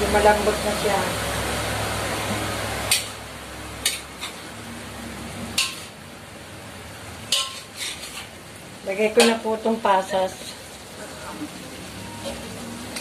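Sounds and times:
meat sizzling: 0:00.0 - 0:13.0
metal spoon scraping a wok: 0:02.8 - 0:03.2, 0:03.8 - 0:04.6, 0:05.5 - 0:06.0, 0:07.3 - 0:08.4, 0:10.3 - 0:10.7.

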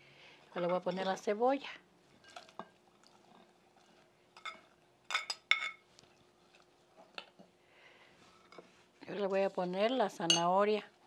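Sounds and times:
spoon clinking on dish: 0:04.4 - 0:05.8, 0:10.3 - 0:10.5.

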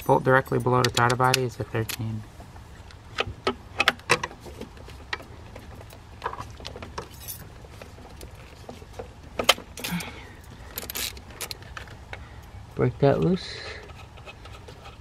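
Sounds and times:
metal hand tools clinking: 0:00.0 - 0:02.2.

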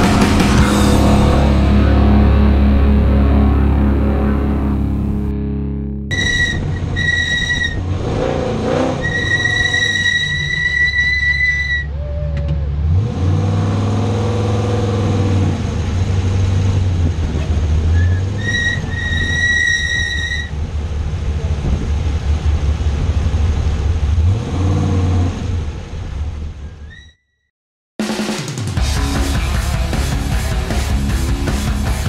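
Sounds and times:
truck engine revving: 0:00.0 - 0:26.9
high whistle-like tone: 0:06.1 - 0:07.8.

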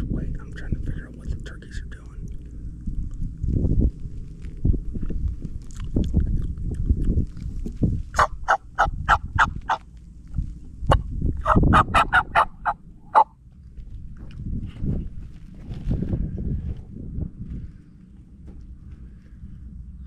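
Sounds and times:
low uneven rumble: 0:00.0 - 0:20.0
turkey call yelps: 0:08.2 - 0:09.8, 0:11.4 - 0:13.3.

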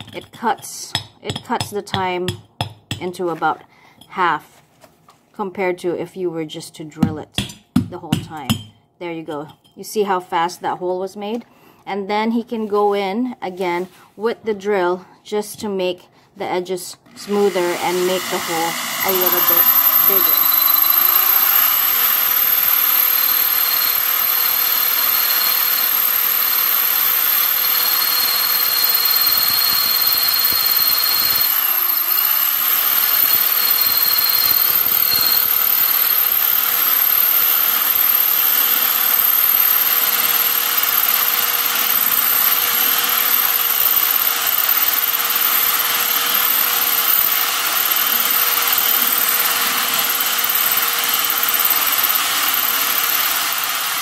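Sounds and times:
electric drill grinding ceramic: 0:17.0 - 0:54.0.

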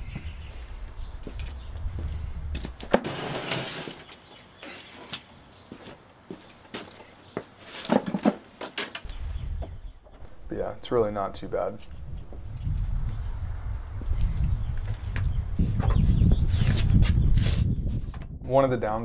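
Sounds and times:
low rumble: 0:09.1 - 0:15.8.

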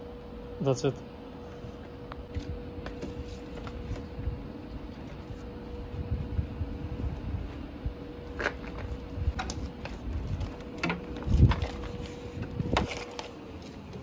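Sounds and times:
faint steady hum: 0:00.0 - 0:14.0
cable and plastic bag rustling: 0:08.3 - 0:14.0.

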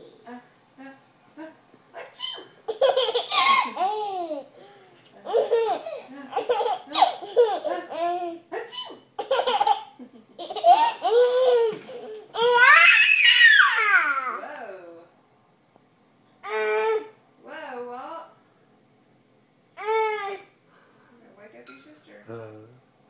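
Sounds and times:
baby squealing: 0:02.2 - 0:04.4, 0:10.6 - 0:14.4
baby giggling: 0:02.3 - 0:12.8.

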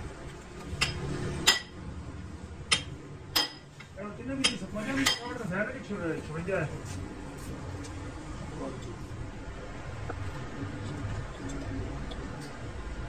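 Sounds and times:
low workshop hum: 0:00.0 - 0:13.0
metal striking metal: 0:00.8 - 0:01.8, 0:02.7 - 0:03.8.

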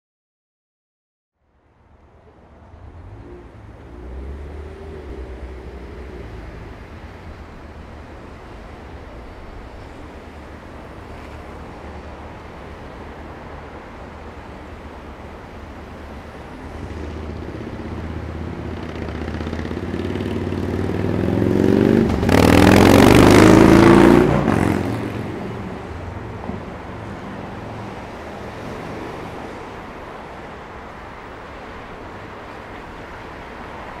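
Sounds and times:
hum of passing cars: 0:01.4 - 0:34.0
vehicle engine accelerating past: 0:02.8 - 0:08.8, 0:16.6 - 0:25.8.

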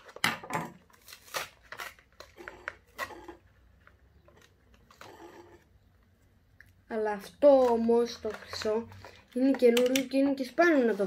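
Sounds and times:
stiff plastic crackling: 0:07.0 - 0:11.0
faint handling noises: 0:07.4 - 0:11.0.

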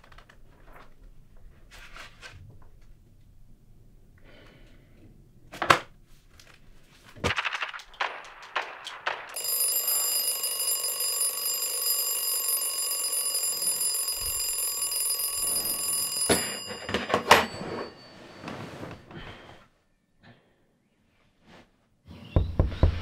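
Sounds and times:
alarm clock clicks and rustles: 0:07.5 - 0:18.4
alarm clock ringing: 0:09.3 - 0:19.1.

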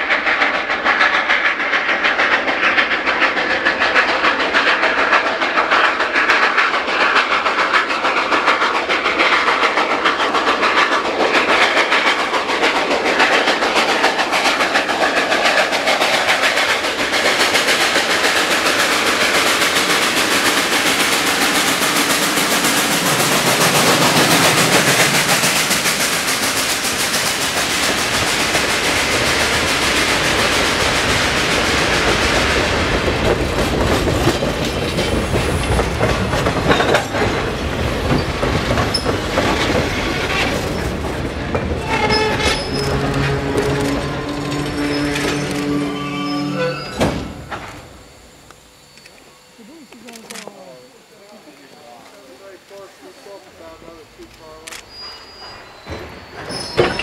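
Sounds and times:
train passing with rushing noise: 0:00.0 - 0:57.0
deep rumble of cars on rails: 0:30.3 - 0:46.2.

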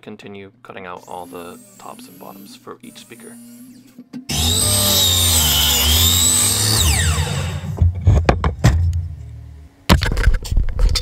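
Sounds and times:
miter saw whining: 0:01.0 - 0:07.8.

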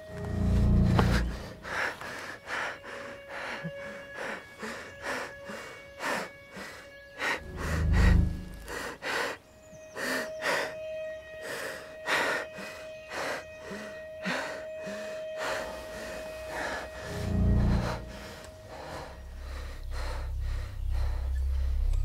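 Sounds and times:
low rumble: 0:00.0 - 0:01.8, 0:07.5 - 0:08.7, 0:16.6 - 0:22.0
held drone of film score: 0:00.0 - 0:22.0.

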